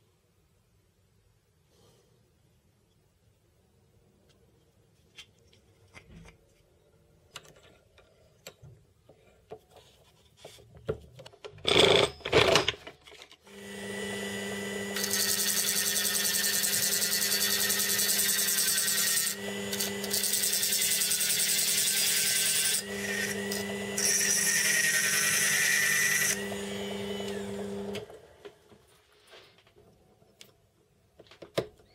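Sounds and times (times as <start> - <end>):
drill press motor humming: 13.5 - 28.3
rotary tool high whine: 13.5 - 28.3.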